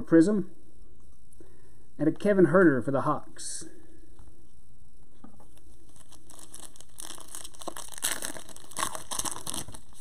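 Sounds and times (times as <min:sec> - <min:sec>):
wrapper crinkling and tearing: 0:05.8 - 0:10.0.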